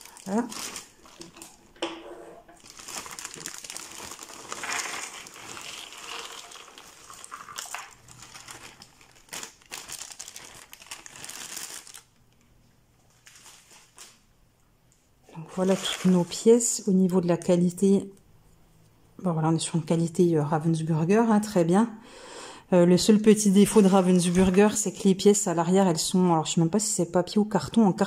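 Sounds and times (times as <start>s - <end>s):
plastic bag crinkling: 0.0s - 1.6s, 2.6s - 12.3s, 13.1s - 14.3s, 23.5s - 25.0s.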